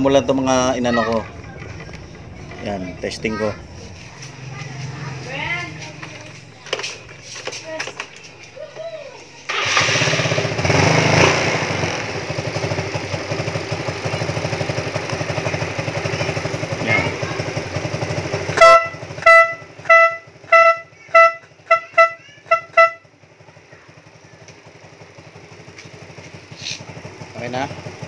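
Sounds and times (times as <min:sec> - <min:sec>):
scooter engine idling: 0:00.0 - 0:28.0
two-tone horn honking: 0:18.5 - 0:23.2.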